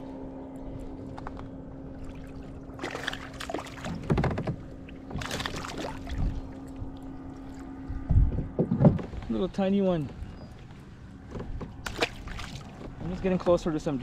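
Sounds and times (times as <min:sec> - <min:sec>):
steady low hum: 0:00.0 - 0:14.0
water splashing: 0:01.9 - 0:07.8, 0:11.6 - 0:13.1.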